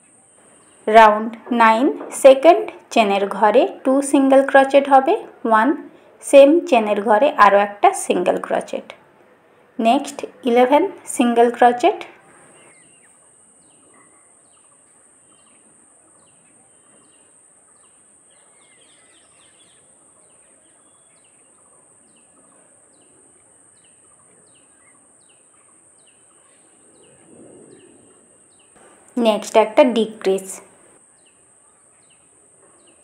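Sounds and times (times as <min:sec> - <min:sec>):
bird chirping: 0:12.0 - 0:33.0.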